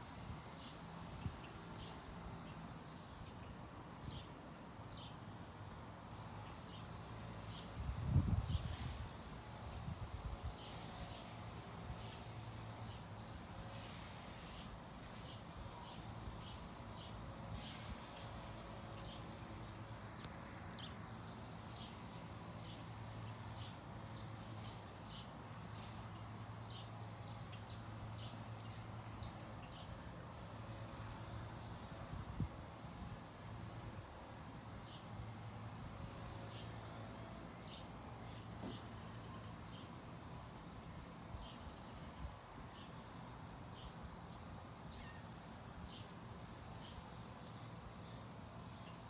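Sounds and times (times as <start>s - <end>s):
small birds chirping: 0.1s - 5.2s, 8.4s - 49.0s.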